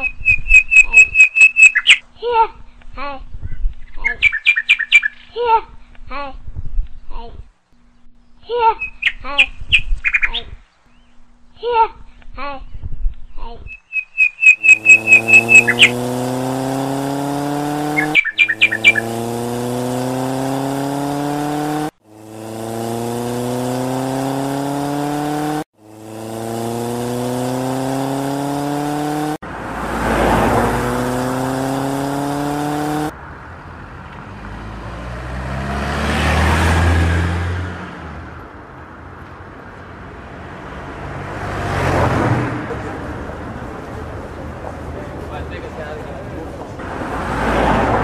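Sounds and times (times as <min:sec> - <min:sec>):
quick high chirps: 0:00.0 - 0:02.0, 0:13.7 - 0:16.2, 0:17.9 - 0:19.1
noisy rumble of approaching vehicle: 0:14.2 - 0:48.0
engine revving up: 0:14.5 - 0:33.2, 0:34.2 - 0:38.3, 0:40.8 - 0:43.1, 0:46.8 - 0:48.0.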